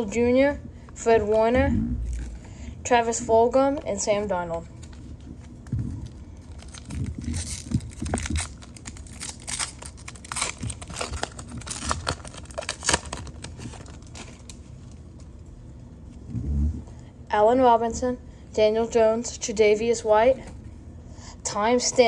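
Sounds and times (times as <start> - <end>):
foil wrapper crinkling and tearing: 4.8 - 15.0.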